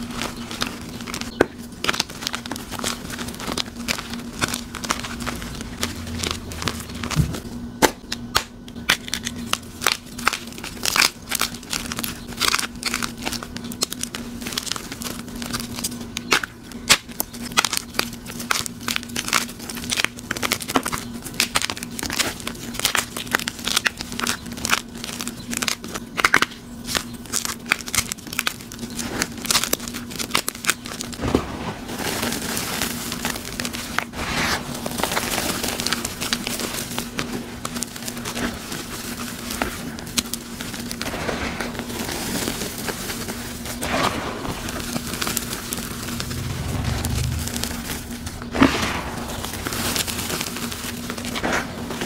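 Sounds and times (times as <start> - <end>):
faint steady hum: 0.0 - 52.0
chalk crunching and crackling: 44.5 - 52.0.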